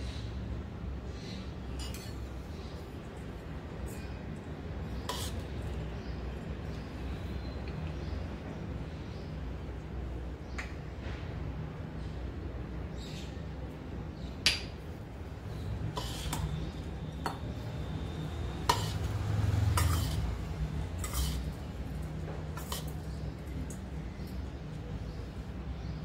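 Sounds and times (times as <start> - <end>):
spoon scraping steel plate: 1.8 - 2.2, 5.0 - 5.5, 15.9 - 17.4, 18.6 - 20.4, 21.0 - 21.6, 22.6 - 23.2.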